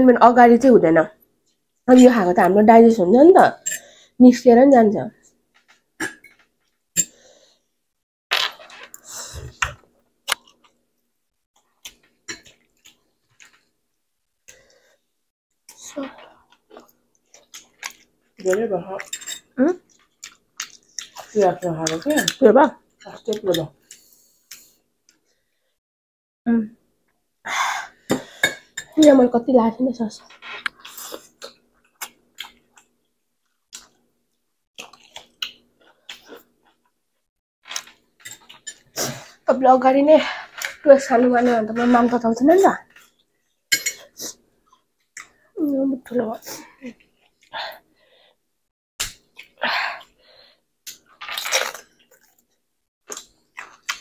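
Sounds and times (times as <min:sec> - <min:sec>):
biting and chewing melon: 0:50.9 - 0:52.4.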